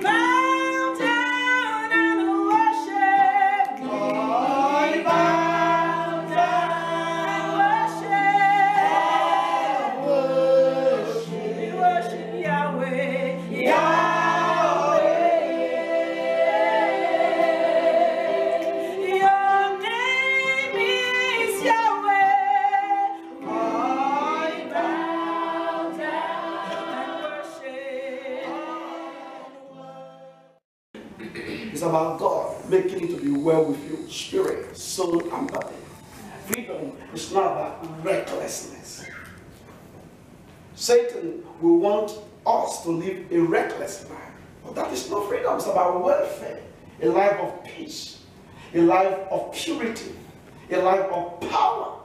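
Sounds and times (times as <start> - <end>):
woman singing worship song: 0.0 - 30.0.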